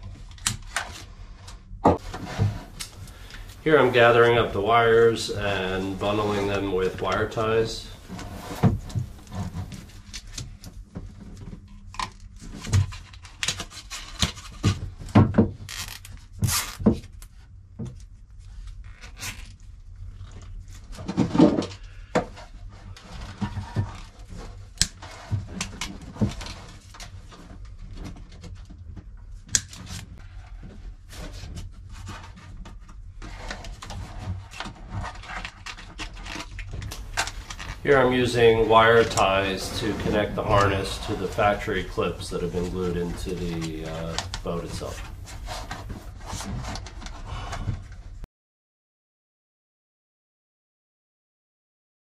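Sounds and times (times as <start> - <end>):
low steady hum: 1.3 - 13.1, 30.2 - 47.7.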